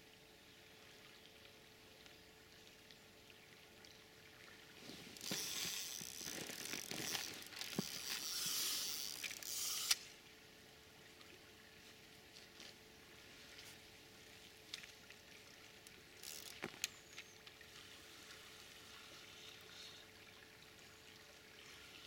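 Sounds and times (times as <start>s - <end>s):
fishing reel ratchet running: 5.2s - 10.0s, 16.2s - 16.6s.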